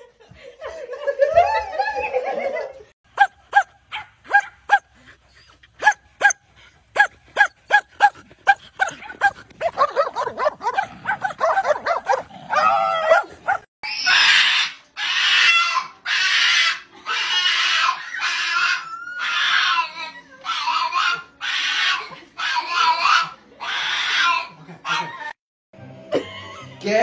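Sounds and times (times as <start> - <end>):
dog barking: 3.2 - 4.9, 5.8 - 6.4, 7.0 - 13.7.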